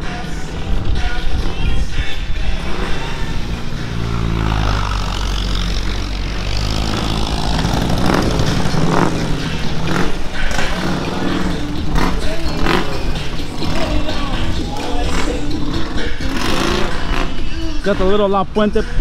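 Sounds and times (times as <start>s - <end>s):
vehicle engine rumbling: 0.0s - 19.0s.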